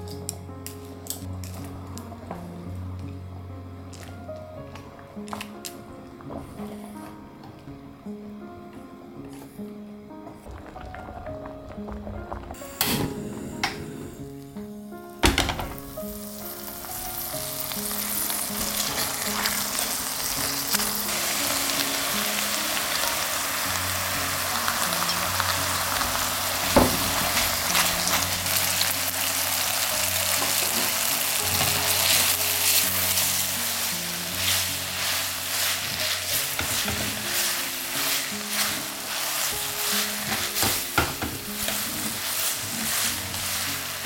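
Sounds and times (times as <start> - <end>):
food sizzling in frying pan: 10.4 - 44.0.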